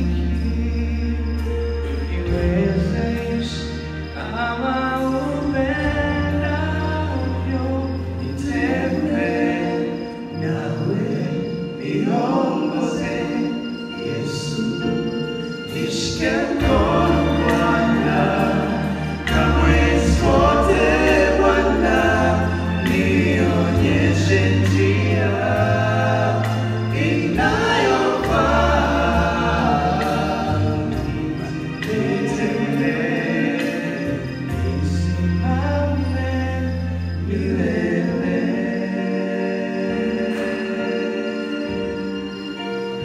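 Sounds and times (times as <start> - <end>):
male vocal trio singing gospel: 0.0 - 43.0.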